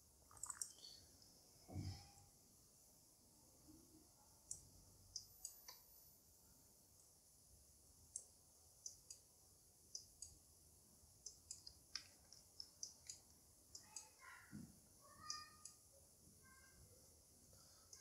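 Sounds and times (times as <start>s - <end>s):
computer mouse clicks: 0.3s - 1.0s, 4.4s - 5.9s, 8.1s - 9.3s, 9.9s - 10.4s, 11.2s - 14.2s.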